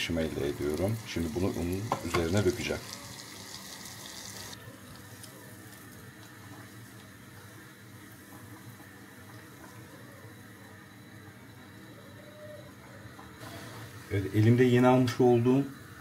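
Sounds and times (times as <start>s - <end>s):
butter sizzling in a pot: 0.0s - 9.7s.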